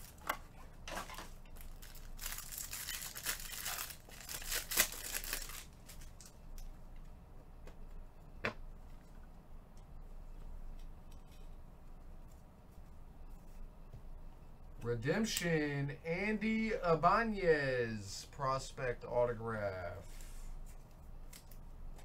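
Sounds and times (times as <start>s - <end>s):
packaging crinkling and tearing: 0.9s - 6.3s.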